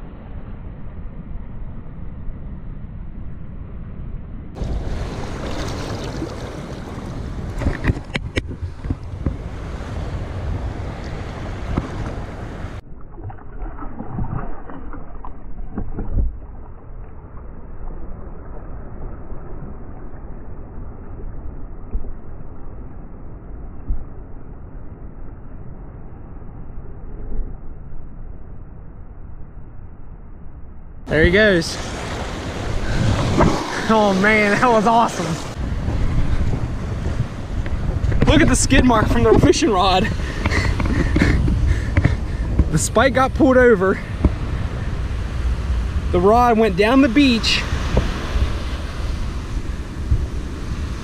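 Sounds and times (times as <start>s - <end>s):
surf splashing around hands: 4.6s - 8.8s, 31.5s - 35.6s
wind buffeting the microphone: 4.6s - 24.4s, 31.1s - 51.0s.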